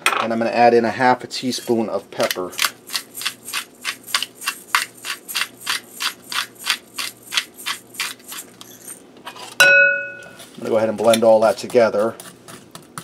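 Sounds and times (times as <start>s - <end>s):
pepper mill grinding: 1.5s - 9.0s.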